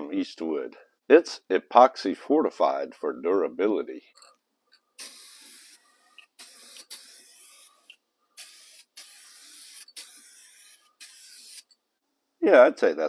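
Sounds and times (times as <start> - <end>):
aerosol spray can hissing: 5.0 - 11.7.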